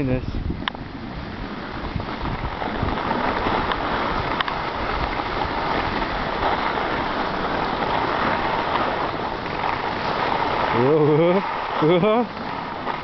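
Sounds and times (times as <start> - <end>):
skis scraping over packed snow: 0.0 - 13.0
wind buffeting microphone: 0.0 - 13.0.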